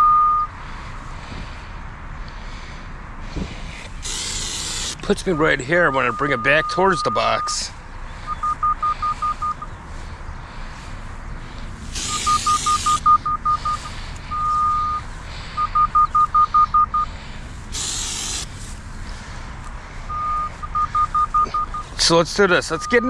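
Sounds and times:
short high beeps: 0:00.0 - 0:00.5, 0:08.3 - 0:09.7, 0:12.0 - 0:17.1, 0:20.1 - 0:21.9, 0:22.7 - 0:23.0
longer steady tone: 0:00.0 - 0:00.6, 0:04.2 - 0:10.7, 0:11.5 - 0:18.4, 0:20.0 - 0:23.0
bursts of hiss: 0:03.8 - 0:05.1, 0:11.6 - 0:14.2, 0:17.6 - 0:19.1.

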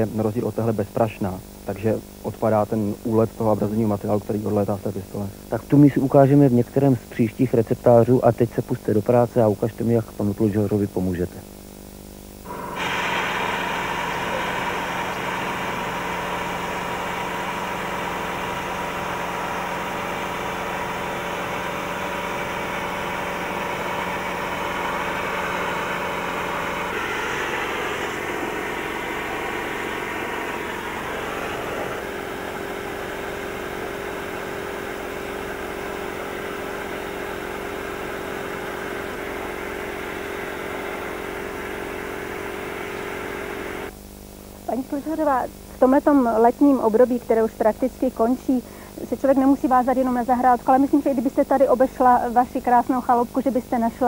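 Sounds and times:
air compressor running: 0:00.0 - 0:08.3, 0:11.2 - 0:54.0
sandblasting gun hissing: 0:12.5 - 0:43.8.

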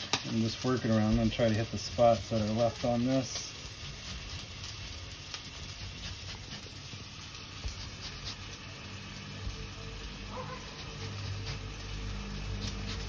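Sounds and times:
meat sizzling in a pan: 0:00.0 - 0:13.0
peel scraping on zester: 0:12.5 - 0:13.0.

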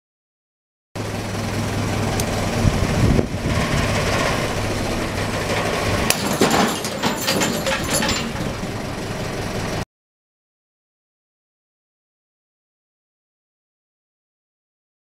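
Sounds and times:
low engine hum: 0:01.0 - 0:06.9, 0:07.6 - 0:09.8
metal hardware clattering: 0:05.5 - 0:08.6.

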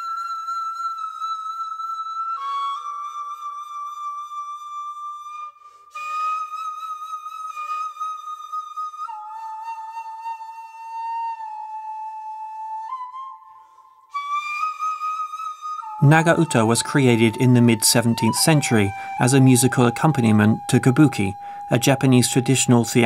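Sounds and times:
bamboo flute long notes: 0:00.0 - 0:23.0.

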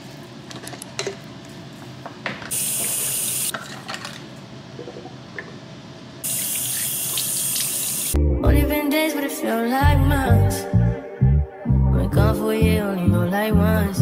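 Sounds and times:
faucet running: 0:06.2 - 0:08.2.

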